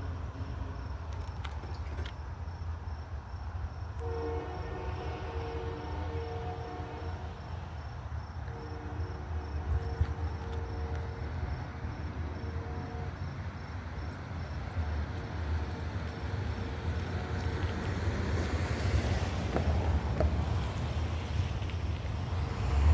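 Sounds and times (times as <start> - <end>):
insect chirping: 0.0 - 22.8
distant train horn: 4.0 - 7.8, 8.4 - 13.6.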